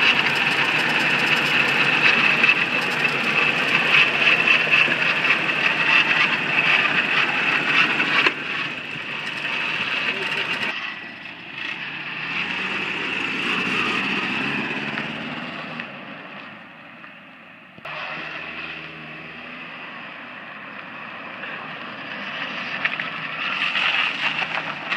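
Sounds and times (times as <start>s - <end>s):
pickup truck engine running: 0.0s - 10.8s.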